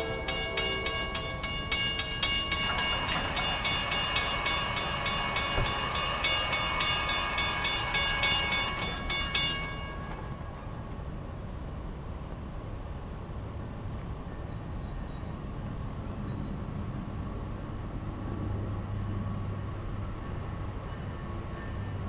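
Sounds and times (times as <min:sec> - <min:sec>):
railroad crossing bell ringing: 0:00.0 - 0:10.7.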